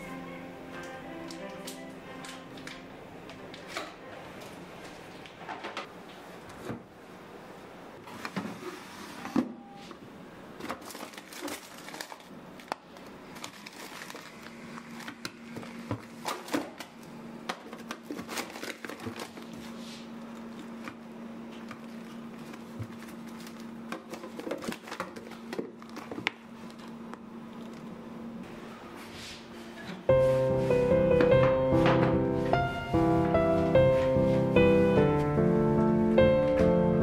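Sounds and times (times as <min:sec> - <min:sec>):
plastic bags rustling and crinkling: 0:10.6 - 0:20.8, 0:21.7 - 0:27.0.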